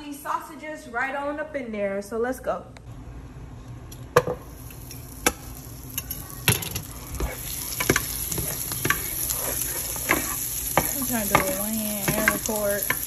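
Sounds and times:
sausage sizzling in a pan: 0:04.4 - 0:13.0
utensil knocking against pan: 0:10.1 - 0:13.0.

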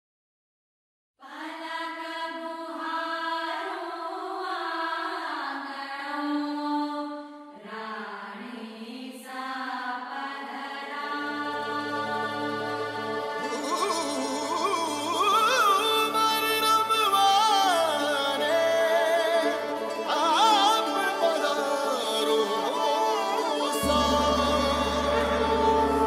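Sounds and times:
solo voice singing long notes: 0:13.4 - 0:26.0
low steady drone: 0:23.8 - 0:26.0.

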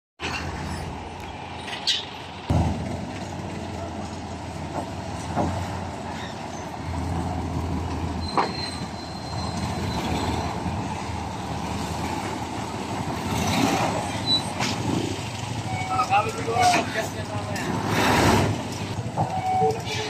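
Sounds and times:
diesel truck engine running: 0:00.2 - 0:20.0
high squeal: 0:08.1 - 0:10.8, 0:15.6 - 0:16.8.

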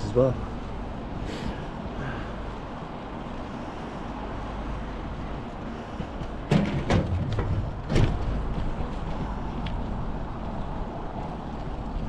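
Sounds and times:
wind and road noise cycling: 0:00.0 - 0:12.0
sharp knocks and rattles: 0:06.2 - 0:09.2.

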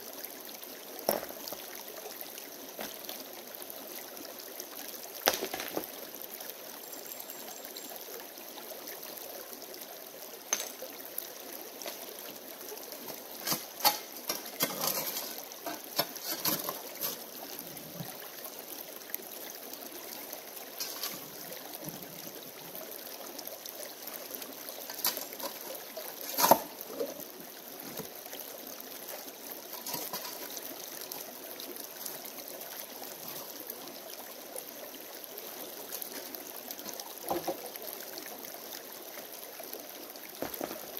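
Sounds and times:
creek trickling over stones: 0:00.0 - 0:40.9
shovel scraping gravel: 0:13.4 - 0:17.2, 0:26.3 - 0:26.7.

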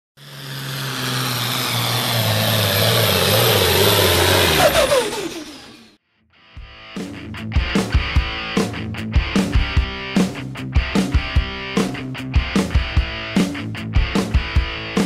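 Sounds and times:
vehicle engine running hard: 0:00.2 - 0:06.0
music: 0:06.0 - 0:15.0.

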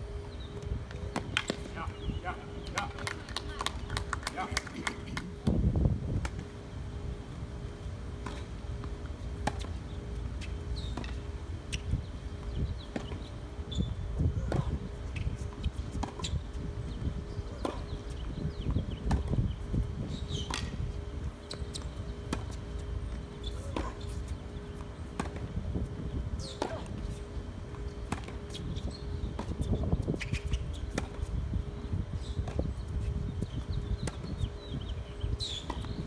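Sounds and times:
tennis ball hit by racket: 0:26.5 - 0:26.9.

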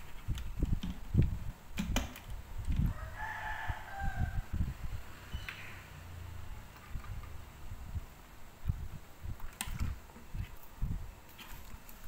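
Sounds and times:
rooster crowing: 0:02.9 - 0:04.6.

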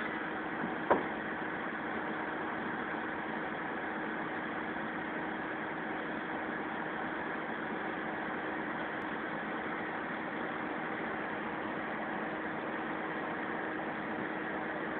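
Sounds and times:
diesel engine idling: 0:00.0 - 0:14.9
sharp knock: 0:00.9 - 0:01.1.

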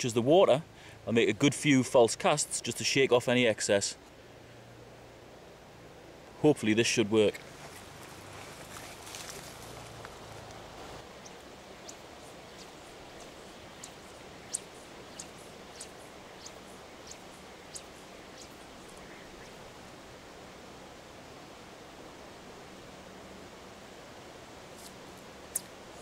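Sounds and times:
river flowing: 0:04.0 - 0:26.0
rustling: 0:07.4 - 0:19.7.

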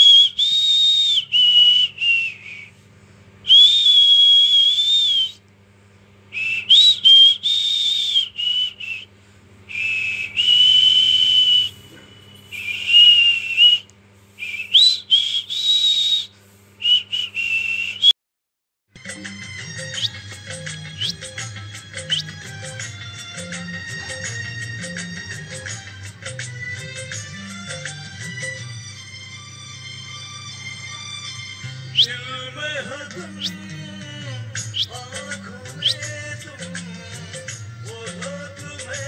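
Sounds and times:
person whistling a tune: 0:00.0 - 0:02.7, 0:03.5 - 0:05.4, 0:06.4 - 0:09.1, 0:09.7 - 0:18.2, 0:19.8 - 0:26.4, 0:31.9 - 0:32.5, 0:33.1 - 0:38.2.

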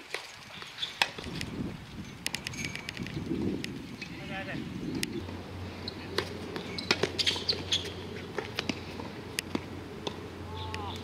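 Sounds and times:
racket hitting ball: 0:06.1 - 0:11.0
tennis ball bounces: 0:06.1 - 0:11.0.

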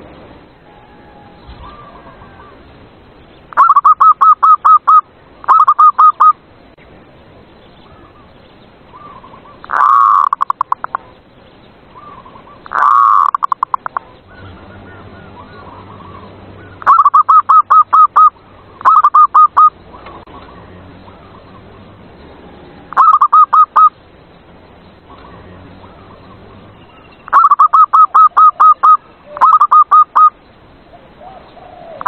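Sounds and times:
dove cooing: 0:00.7 - 0:02.6, 0:03.5 - 0:06.4, 0:09.0 - 0:11.1, 0:12.0 - 0:20.6, 0:22.7 - 0:23.9, 0:27.3 - 0:32.0.

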